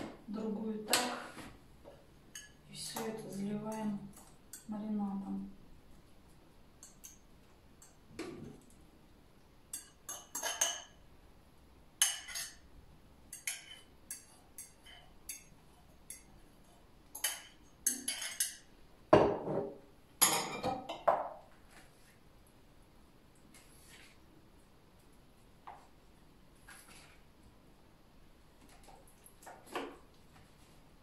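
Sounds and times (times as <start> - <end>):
fork clinking on glass bowl: 9.7 - 11.0, 17.1 - 18.7.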